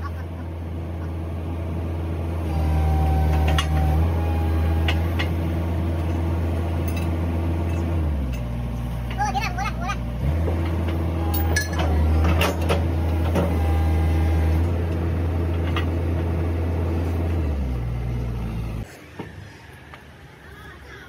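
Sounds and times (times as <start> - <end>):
diesel engine running: 0.0 - 20.9
metallic clinks of steel tracks: 6.8 - 9.5, 10.5 - 13.6.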